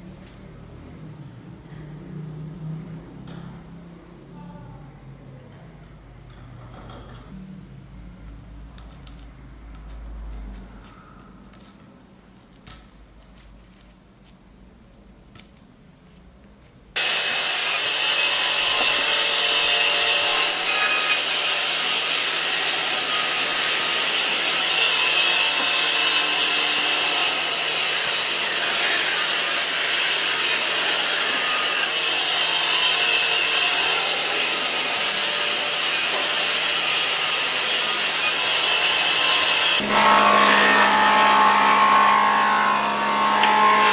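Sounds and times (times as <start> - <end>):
band saw cutting log: 17.0 - 43.9.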